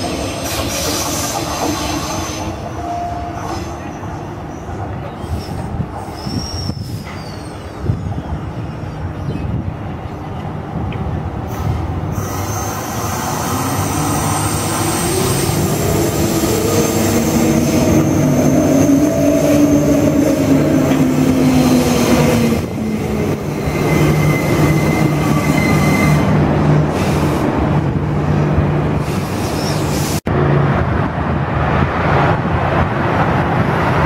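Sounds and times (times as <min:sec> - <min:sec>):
standing train humming: 0:07.0 - 0:34.0
train wheel noise: 0:10.3 - 0:34.0.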